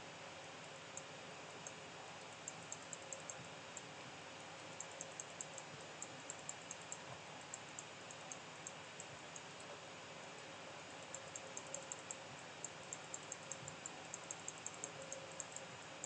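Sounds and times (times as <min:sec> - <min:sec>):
computer mouse and keyboard clicking: 0:02.3 - 0:03.5, 0:11.0 - 0:16.0.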